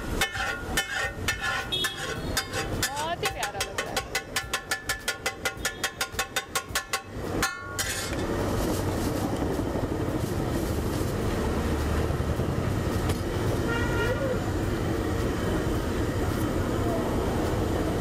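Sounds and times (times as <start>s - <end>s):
metal spatula striking griddle: 0.0s - 8.3s
steady noisy hiss: 6.0s - 18.0s.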